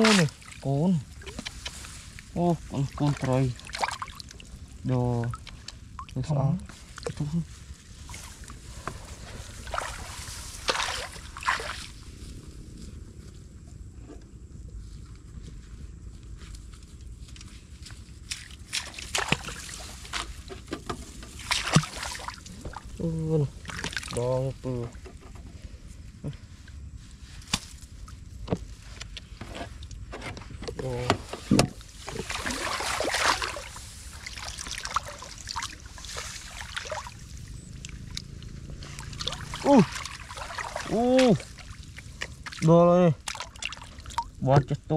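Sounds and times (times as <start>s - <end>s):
water sloshing around wading feet: 0.0s - 12.2s, 17.3s - 24.3s, 31.3s - 44.6s
low rumble: 30.7s - 43.3s.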